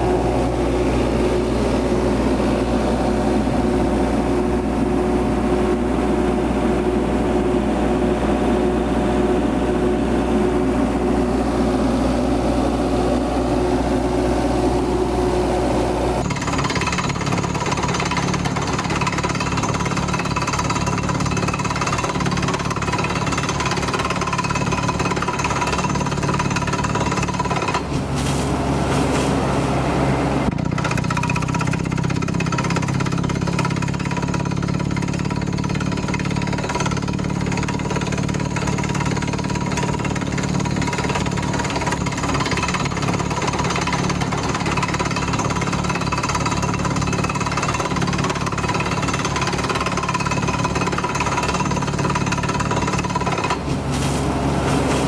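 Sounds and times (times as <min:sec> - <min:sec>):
drilling rig engine running: 0:00.0 - 0:55.0
drill pounding: 0:09.9 - 0:28.8, 0:30.5 - 0:55.0.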